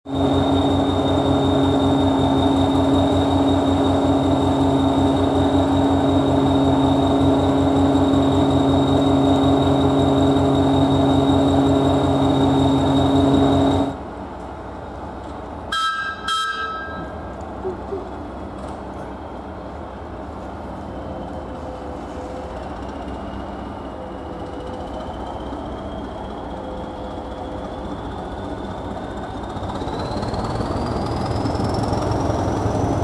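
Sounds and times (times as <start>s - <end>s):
diesel engine idling with whine: 0.0s - 33.0s
train horn blasts: 15.7s - 17.2s.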